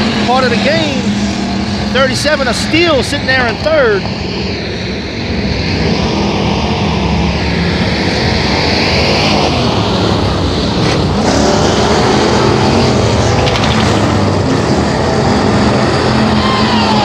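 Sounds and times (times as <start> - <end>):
stock car engines racing: 0.0 - 17.0.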